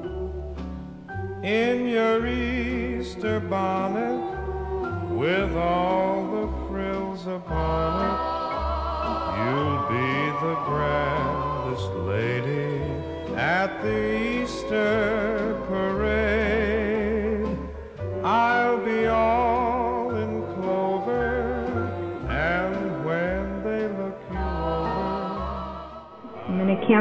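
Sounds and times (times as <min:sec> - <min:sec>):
vibrato melody over bass line: 0:00.0 - 0:25.8.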